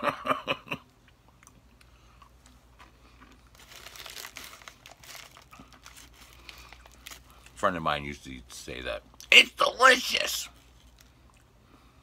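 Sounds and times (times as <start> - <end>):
plastic wrapper crinkling: 3.2 - 7.6.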